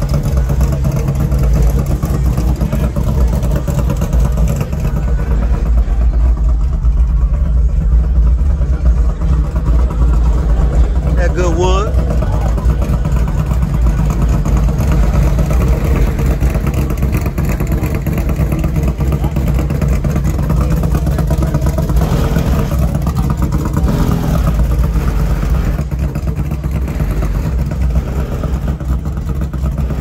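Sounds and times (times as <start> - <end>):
vehicle engine running: 0.0 - 30.0.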